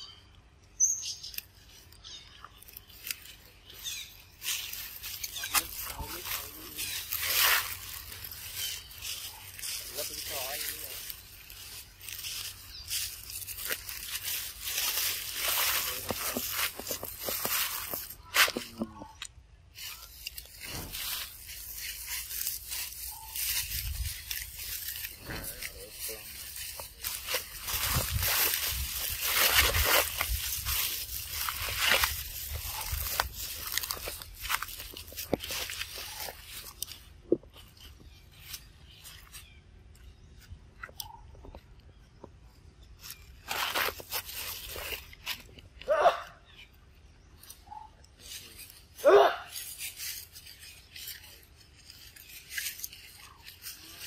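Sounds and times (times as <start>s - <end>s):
rustling and scraping: 1.2s - 54.0s.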